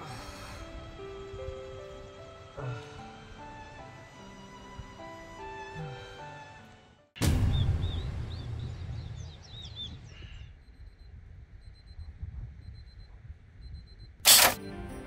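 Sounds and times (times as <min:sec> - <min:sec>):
birds chirping: 0:07.5 - 0:11.0.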